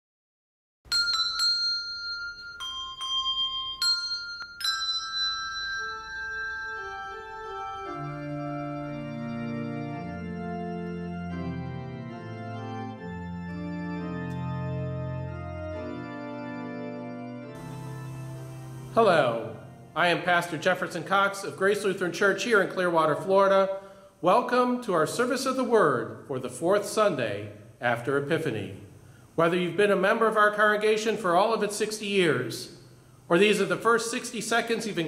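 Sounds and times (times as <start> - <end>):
organ music: 5.6 - 28.7.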